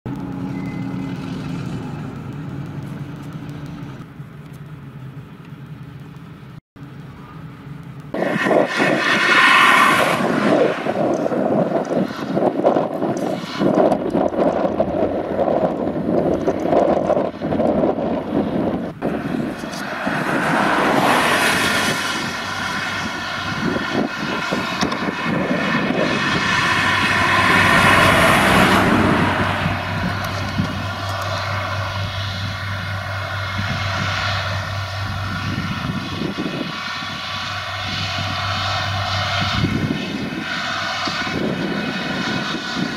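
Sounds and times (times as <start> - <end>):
engine running: 0.1 - 42.9
wind buffeting microphone: 8.1 - 42.9.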